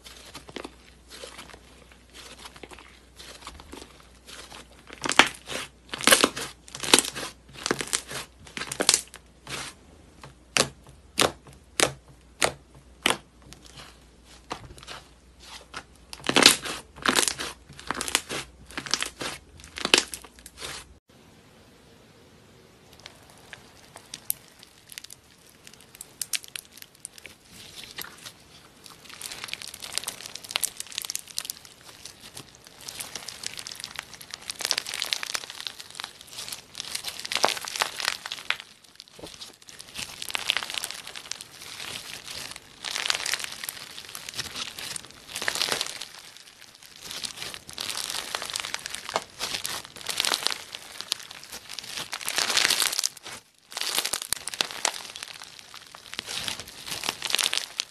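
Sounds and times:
slime beads crackling and clicking: 23.0 - 28.2, 28.9 - 57.9.

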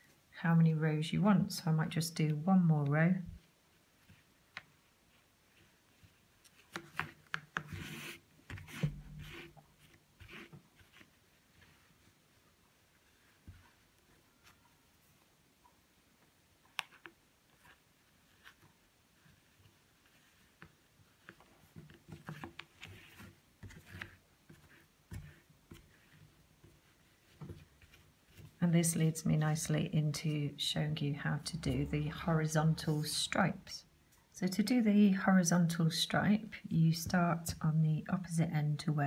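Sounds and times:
yarn scraping: 2.3 - 14.8, 16.7 - 33.4.

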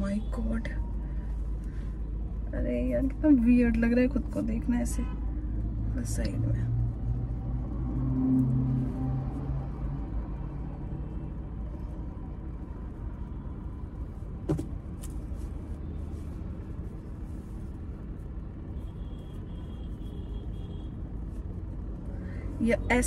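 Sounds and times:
car cabin rumble: 14.0 - 15.4.

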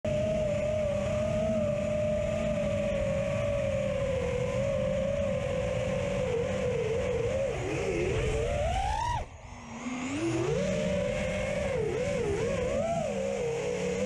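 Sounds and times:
propeller wash and wind rumble: 0.0 - 14.0
drone motors whining: 0.1 - 14.0.

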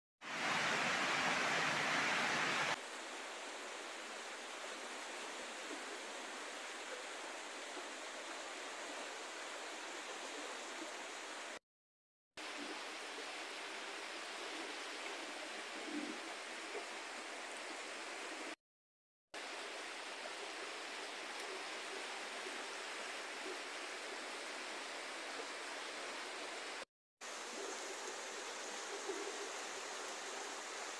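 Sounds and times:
flood water rushing: 0.2 - 2.8.

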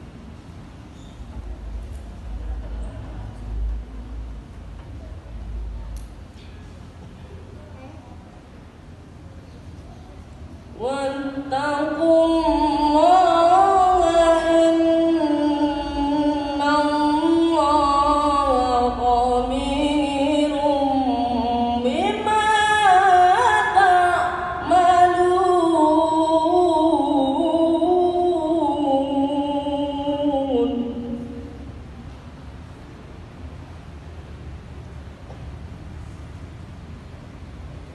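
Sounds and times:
boy reciting melodically: 10.7 - 31.9.

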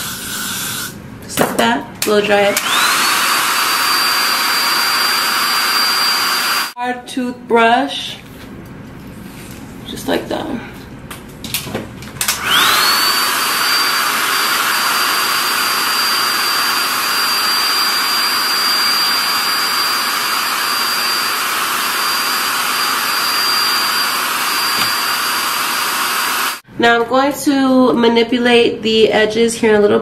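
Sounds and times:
hair dryer blowing: 2.3 - 6.8, 12.2 - 26.6.

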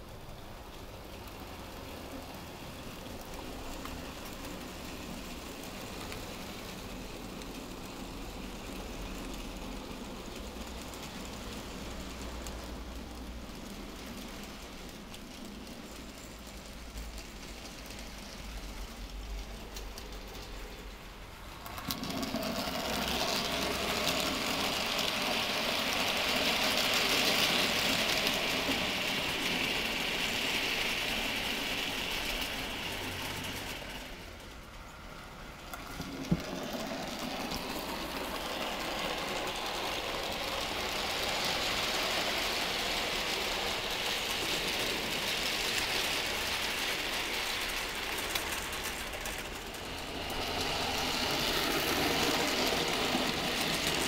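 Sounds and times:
wheels rattling on rails: 0.0 - 54.0.

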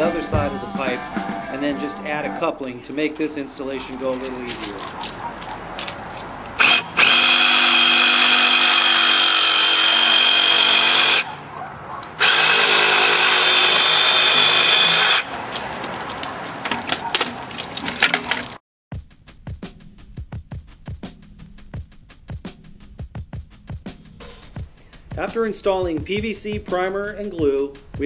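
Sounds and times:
clattering and knocking of handling: 3.9 - 6.6, 15.4 - 18.6
reciprocating saw cutting pipe: 6.6 - 11.4, 12.1 - 15.7.

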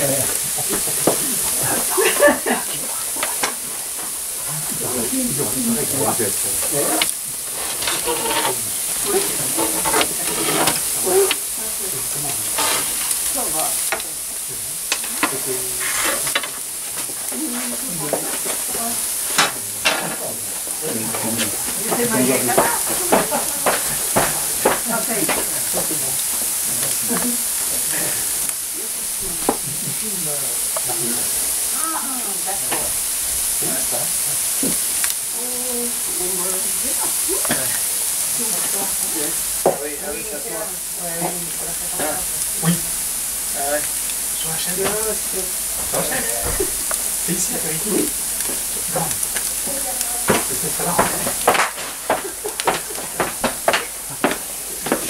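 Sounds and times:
sizzling hiss: 0.0 - 55.0
wood fire crackling: 0.0 - 55.0
sharp pops: 48.1 - 55.0.

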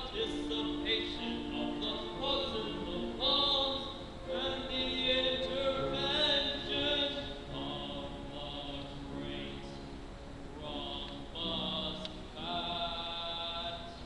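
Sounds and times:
group of voices singing: 10.6 - 13.6.

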